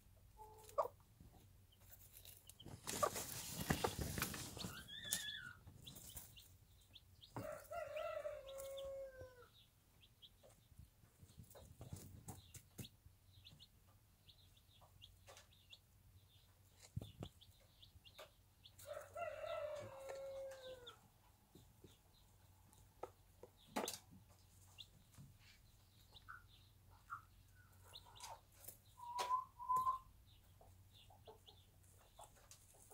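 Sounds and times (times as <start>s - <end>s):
chick peeping: 0.1s - 32.9s
rooster crowing: 7.4s - 9.5s, 18.8s - 20.9s.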